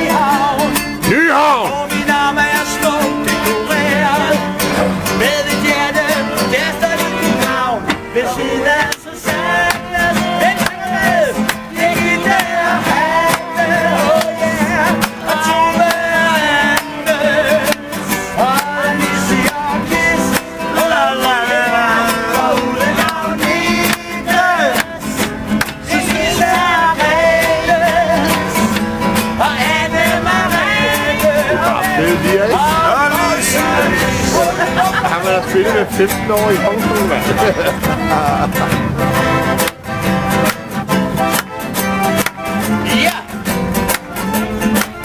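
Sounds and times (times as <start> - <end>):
person singing: 0.0 - 4.5
accordion: 0.0 - 45.0
acoustic guitar: 0.0 - 45.0.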